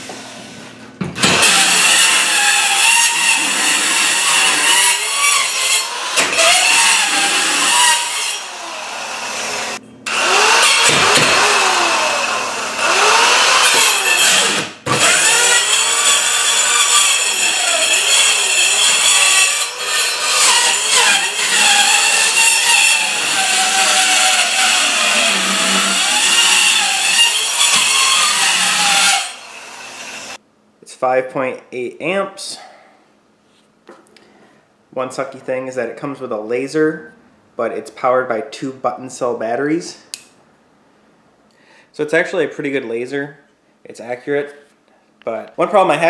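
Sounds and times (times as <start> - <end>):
circular saw cutting plywood: 1.2 - 30.4.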